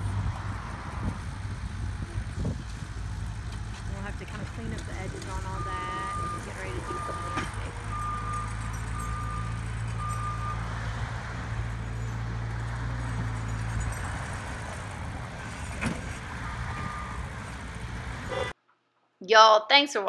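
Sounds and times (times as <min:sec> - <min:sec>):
diesel engine running: 0:00.0 - 0:18.5
reverse alarm beeping: 0:05.3 - 0:10.6, 0:16.7 - 0:17.2.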